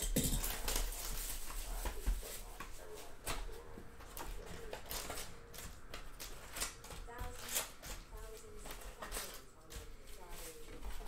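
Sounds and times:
wrapper and cardboard crinkling: 0.0s - 3.4s, 4.1s - 11.0s.

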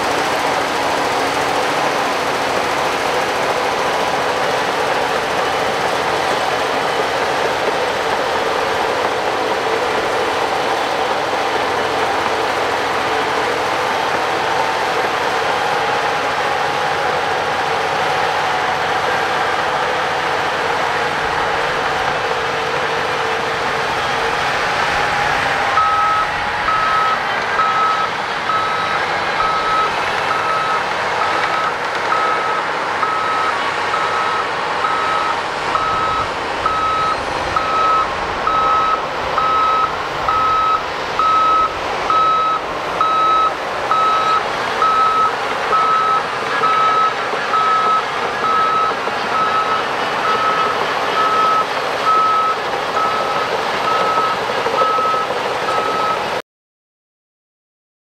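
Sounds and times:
heavy machine engine running: 0.0s - 56.4s
reverse warning alarm beeping: 25.8s - 56.4s.

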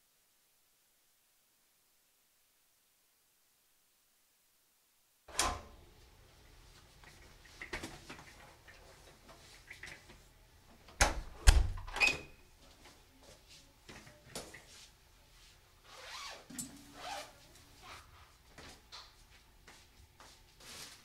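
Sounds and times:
door opening with a click: 5.3s - 5.7s, 10.9s - 12.4s
door shutting with loud knocks: 11.0s - 12.0s.

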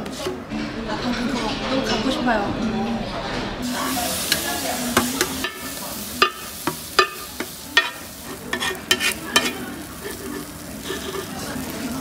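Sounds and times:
metal spatula scraping on griddle: 3.2s - 12.0s
steady sizzle: 3.6s - 12.0s.

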